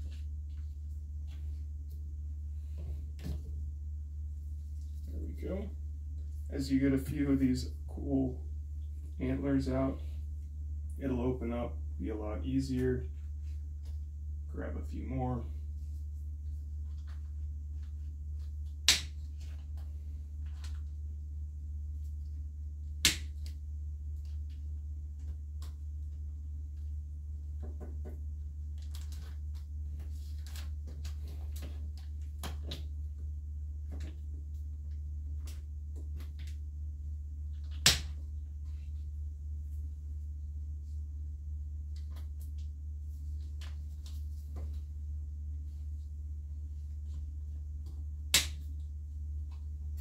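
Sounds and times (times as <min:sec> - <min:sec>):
steady low hum: 0:00.0 - 0:50.0
sharp snap: 0:18.8 - 0:19.2, 0:23.0 - 0:23.6, 0:37.7 - 0:38.2, 0:48.3 - 0:48.7.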